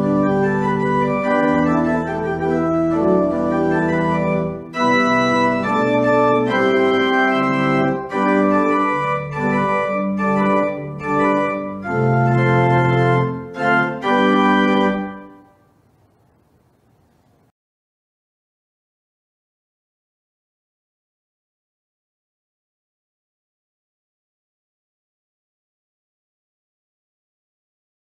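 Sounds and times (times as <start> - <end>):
organ playing full chords: 0.0 - 15.6.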